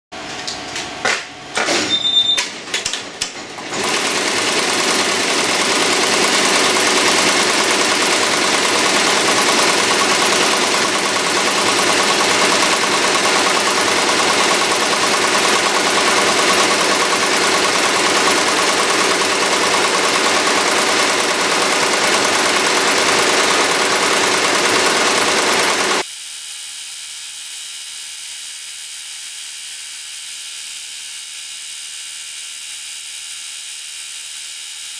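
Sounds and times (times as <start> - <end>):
machine clicks and knocks: 0.3 - 26.0
embroidery machine stitching rattle: 2.7 - 26.0.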